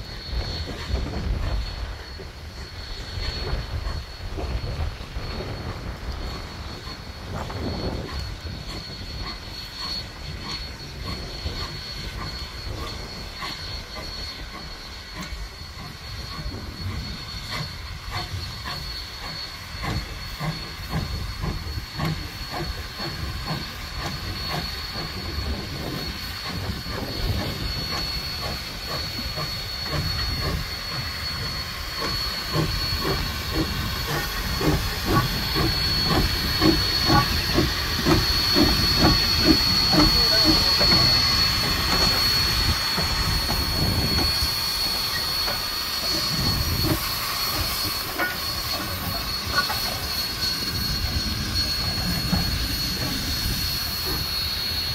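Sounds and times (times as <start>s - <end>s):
steam hissing: 0.0s - 54.9s
steam locomotive chuffing: 0.0s - 54.9s.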